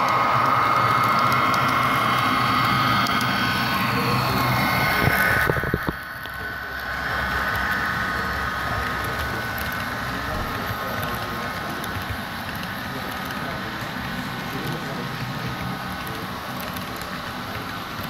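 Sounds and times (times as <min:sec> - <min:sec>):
model train wheels rolling on rail: 0:00.0 - 0:18.0.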